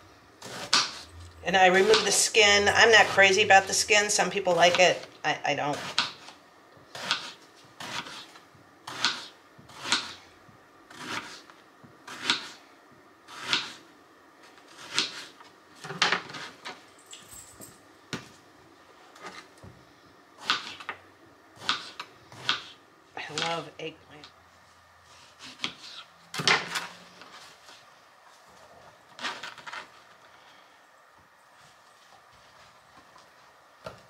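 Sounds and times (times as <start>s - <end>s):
knife slicing on cutting board: 7.0s - 8.3s.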